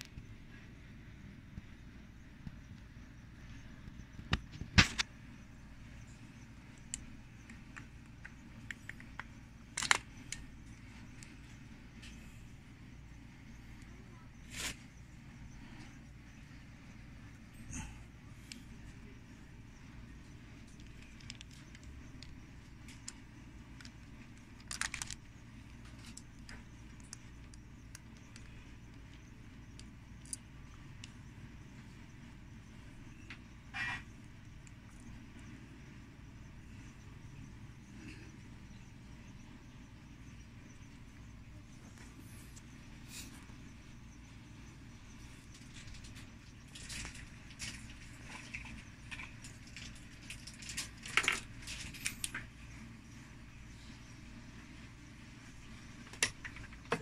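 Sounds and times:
steady low hum: 0.0s - 57.0s
light handling ticks: 2.4s - 53.1s
hard plastic clicks and snaps: 6.8s - 10.4s.

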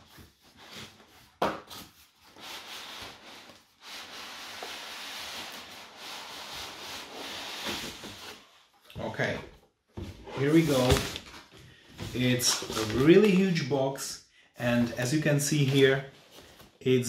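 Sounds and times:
cardboard scraping against foam: 10.2s - 11.2s.

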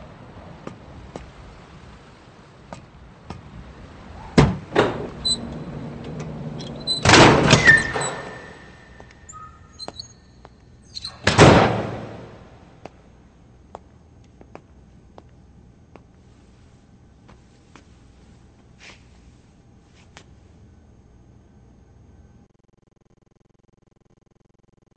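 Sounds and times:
metal door slamming: 4.2s - 9.0s, 11.0s - 12.5s
metal door clanking slide: 4.2s - 9.6s, 11.0s - 12.4s.

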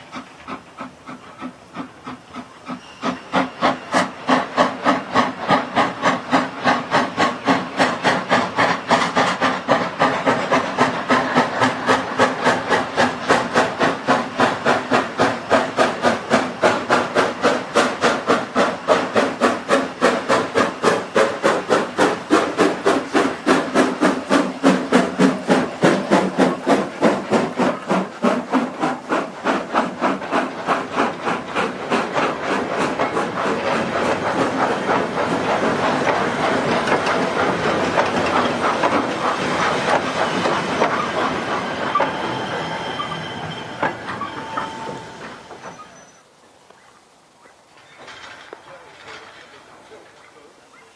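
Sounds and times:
steam locomotive exhaust barking: 0.0s - 46.3s
wagons rolling past: 47.7s - 50.5s.

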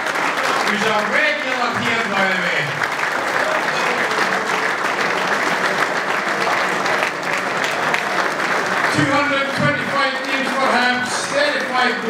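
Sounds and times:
people applauding: 0.0s - 12.0s.

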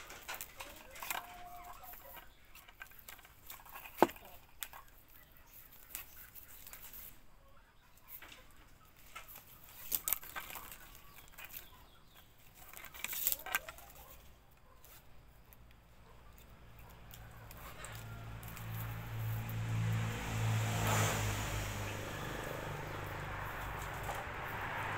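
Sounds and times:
clicks and rustles of binding broom: 0.0s - 7.3s, 8.0s - 21.7s, 22.3s - 24.9s
low engine hum: 16.6s - 24.9s.

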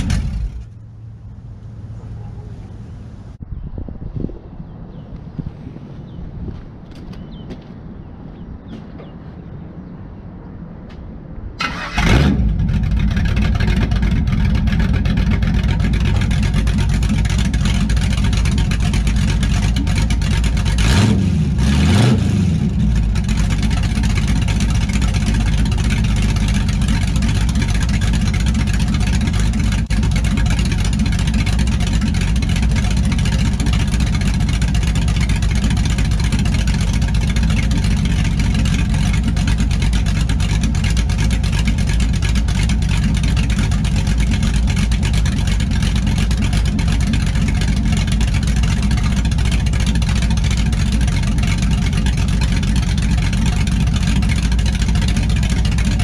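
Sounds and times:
engine cranking and starting: 0.0s - 0.9s, 11.6s - 20.9s
engine idling: 0.0s - 3.4s, 11.6s - 56.0s
engine revving: 0.0s - 3.4s, 11.6s - 56.0s.

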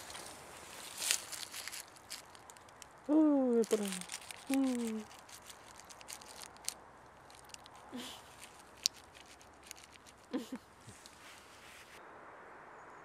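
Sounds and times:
dry leaves rustling: 0.0s - 12.0s
small ticks: 3.7s - 11.5s.

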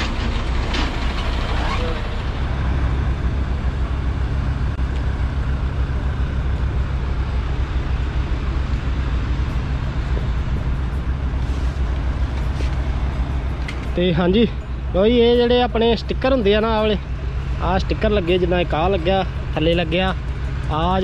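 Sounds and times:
truck engine running: 0.0s - 21.0s.

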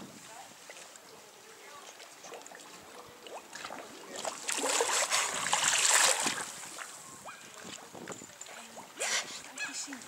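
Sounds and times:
water splashing in pool: 1.9s - 9.1s.

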